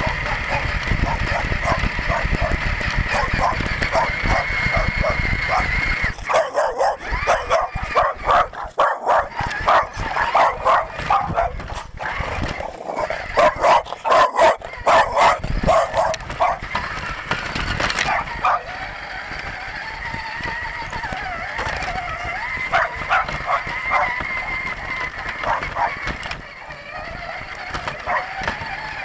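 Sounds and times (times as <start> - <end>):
dog barking and yipping: 0.0 - 16.9, 18.0 - 18.8, 21.6 - 26.2, 27.9 - 28.5.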